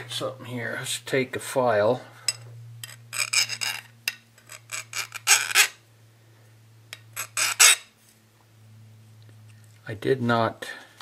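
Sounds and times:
file scraping on steel: 2.8 - 5.8, 6.9 - 7.9.

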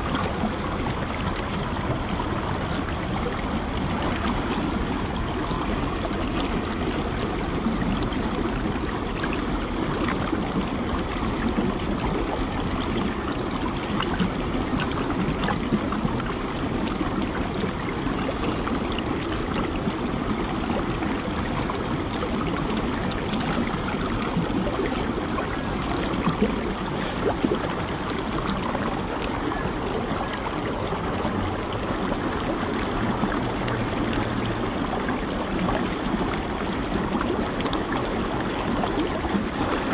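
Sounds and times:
stream flowing over rocks: 0.0 - 39.9.

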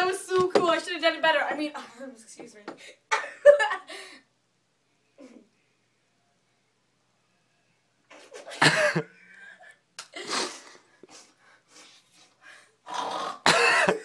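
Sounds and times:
person sneezing: 10.2 - 10.8
breathing: 10.6 - 12.8.

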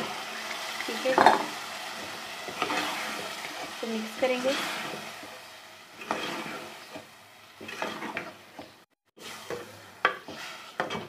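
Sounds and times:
light sizzle: 0.0 - 11.0
utensil scraping a pot: 1.0 - 5.3, 5.9 - 8.4, 9.2 - 11.0.

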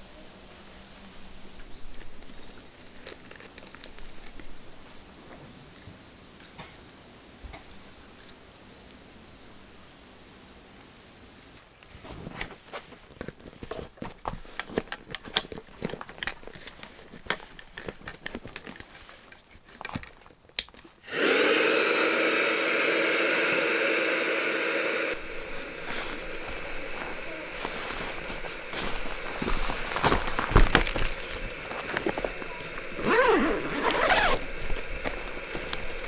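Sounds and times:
clicks and rustling of gear: 1.6 - 7.0, 11.4 - 21.0, 25.8 - 36.0
electric air pump whining: 21.0 - 36.0.

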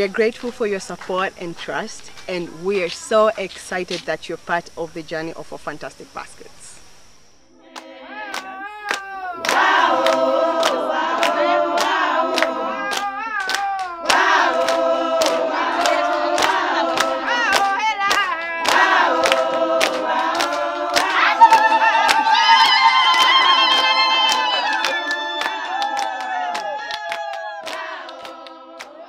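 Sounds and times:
women singing in chorus: 7.6 - 8.6, 9.3 - 29.0
hand clapping: 7.8 - 29.0.

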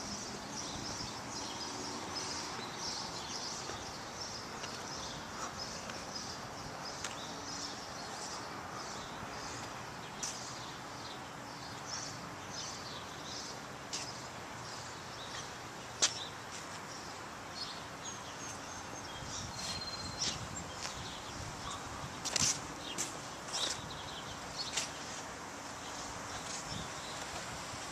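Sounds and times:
steady background hiss: 0.0 - 27.9
high bird chirps: 19.2 - 20.4.

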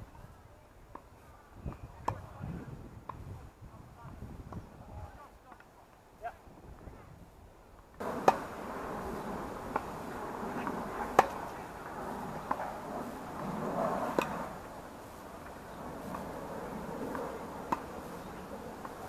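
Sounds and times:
steady background hiss: 5.1 - 19.0
tennis ball struck by rackets: 8.0 - 8.5, 10.6 - 11.5, 14.1 - 14.4, 17.7 - 19.0.

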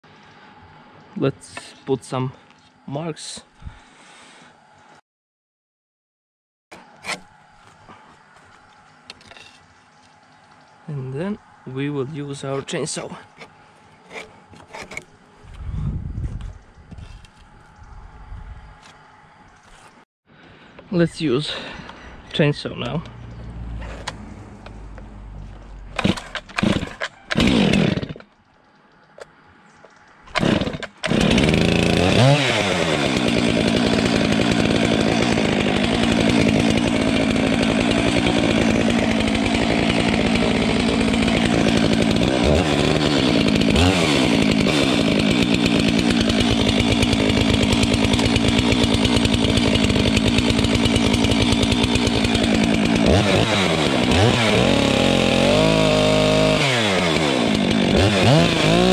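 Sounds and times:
chainsaw pull-starting and running: 12.4 - 15.2, 25.8 - 28.4, 30.3 - 58.9.

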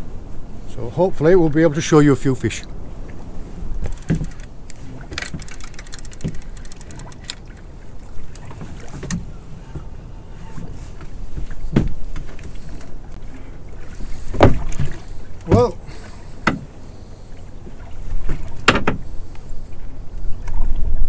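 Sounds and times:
water lapping against hull: 0.0 - 21.0
fishing reel clicking: 3.8 - 7.4
knocks on boat: 11.3 - 12.3, 14.3 - 15.8, 16.4 - 16.7, 18.2 - 19.1.

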